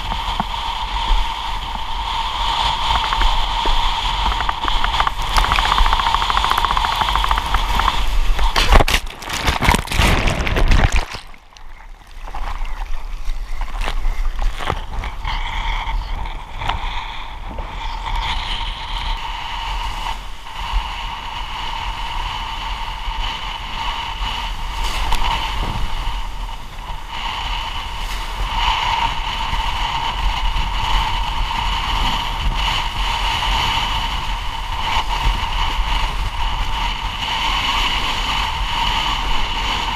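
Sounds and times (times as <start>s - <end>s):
water rushing and splashing: 0.0s - 15.2s
wind buffeting camera: 0.0s - 39.9s.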